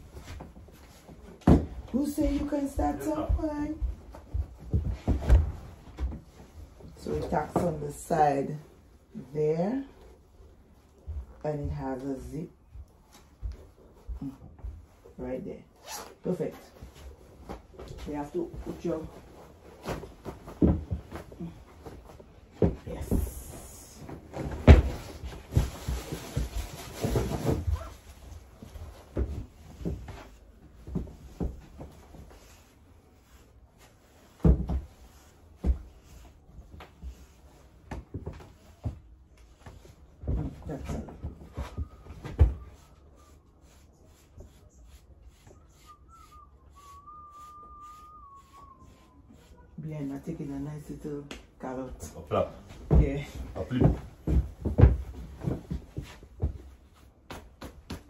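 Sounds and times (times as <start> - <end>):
faint wavering whistled tone: 41.4 - 43.6, 45.4 - 49.7
hairbrush scratching through hair: 42.7 - 49.8.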